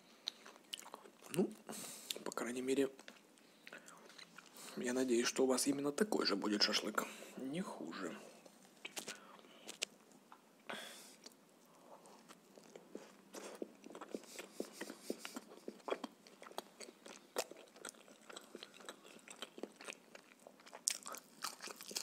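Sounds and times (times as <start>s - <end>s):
chewing with mouth clicks: 0.2s - 1.5s, 8.8s - 10.0s, 12.0s - 22.0s
biting bread: 12.1s - 22.0s.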